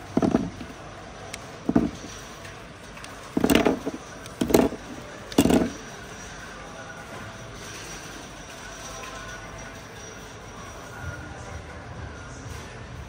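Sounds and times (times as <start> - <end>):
knocks and scraping clatters: 0.0 - 10.4.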